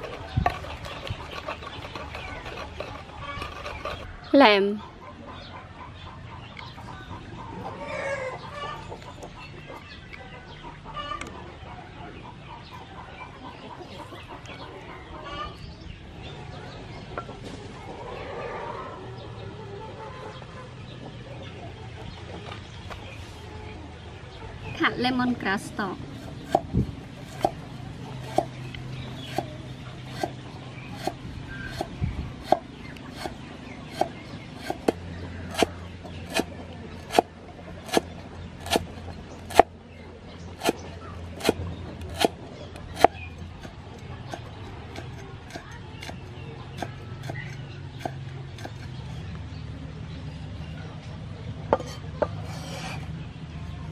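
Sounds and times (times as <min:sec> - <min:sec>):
chickens clucking: 0:00.0 - 0:53.9
cleaver chopping on wooden block: 0:27.3 - 0:27.6, 0:31.0 - 0:39.7, 0:40.6 - 0:40.8, 0:41.4 - 0:46.2.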